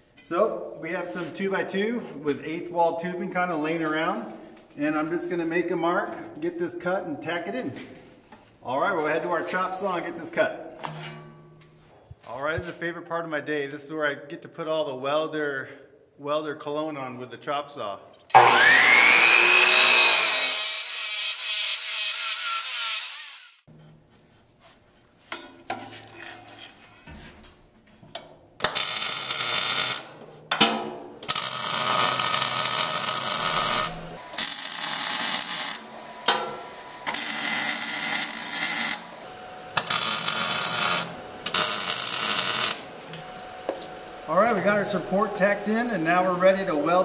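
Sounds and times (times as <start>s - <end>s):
chop saw cutting steel: 18.3s - 23.7s, 28.6s - 30.1s, 31.2s - 43.9s
welding arc bursts: 28.6s - 30.2s, 31.2s - 35.9s, 37.0s - 39.1s, 39.8s - 42.9s.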